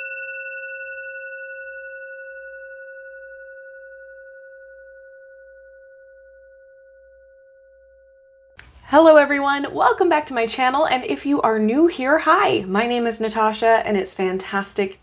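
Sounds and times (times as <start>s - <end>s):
singing bowl ringing: 0.0s - 8.6s.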